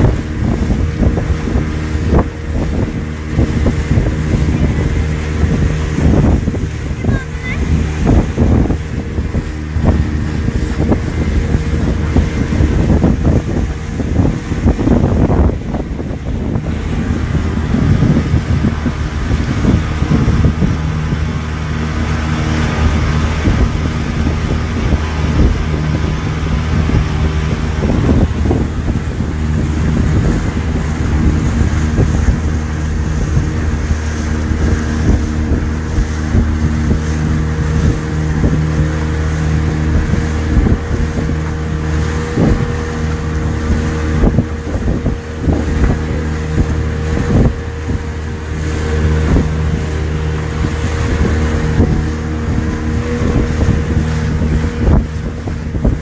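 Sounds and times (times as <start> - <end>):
speedboat engine running: 0.0 - 56.0
water rushing past hull: 0.0 - 56.0
wind buffeting microphone: 0.0 - 56.0.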